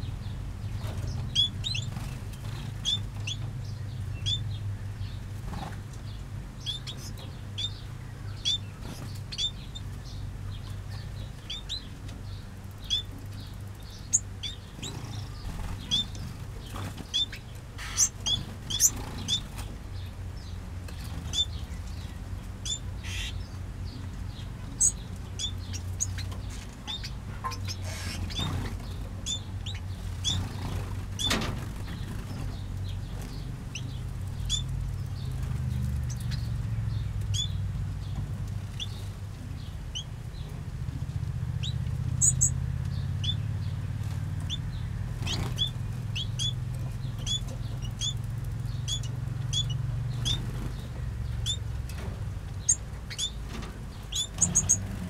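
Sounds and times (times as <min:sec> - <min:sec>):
finches chirping: 0:00.0 - 0:40.5, 0:41.6 - 0:43.6, 0:44.4 - 0:52.0, 0:52.6 - 0:55.0
wing flutters: 0:27.7 - 0:36.4, 0:43.8 - 0:55.0.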